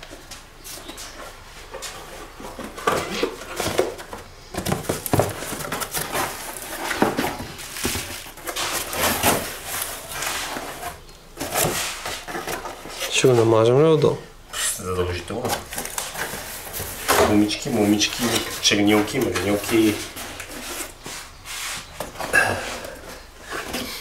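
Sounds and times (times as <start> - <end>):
cardboard and bubble wrap rustling: 0.0 - 24.0.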